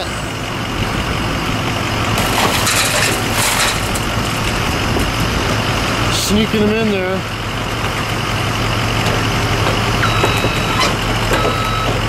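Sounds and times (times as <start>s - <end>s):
diesel engine running: 0.0s - 12.0s
glass crunching and scraping: 2.2s - 4.7s.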